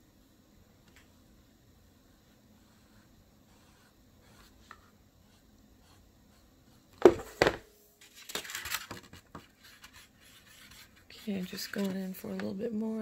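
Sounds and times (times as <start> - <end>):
phone knocks: 7.0 - 7.7.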